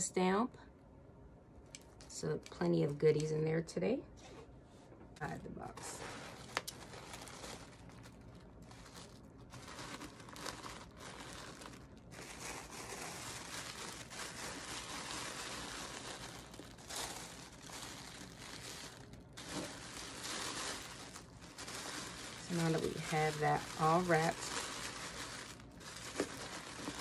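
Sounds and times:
tissue paper crinkling: 5.6s - 27.0s.

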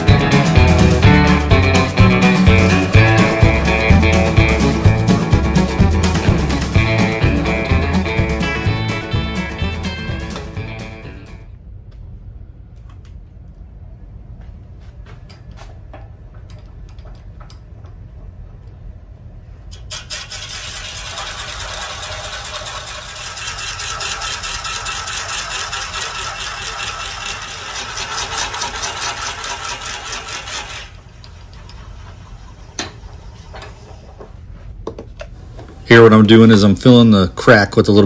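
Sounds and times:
wood lathe humming: 0.0s - 11.2s, 19.9s - 31.0s
drill bit boring into wood: 19.9s - 30.9s.

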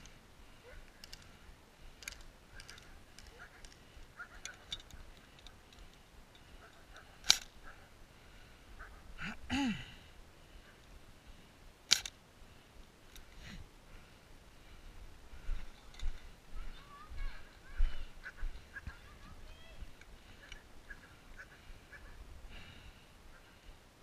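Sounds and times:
faint clicks: 2.0s - 7.6s.

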